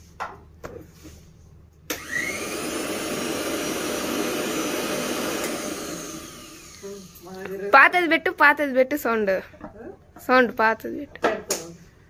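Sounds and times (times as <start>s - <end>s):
mixer grinder motor running: 1.9s - 7.4s.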